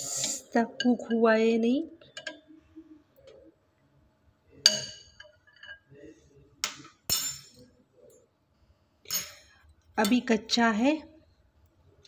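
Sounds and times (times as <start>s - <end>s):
spoon clinking against glass bowl: 4.7s - 5.8s.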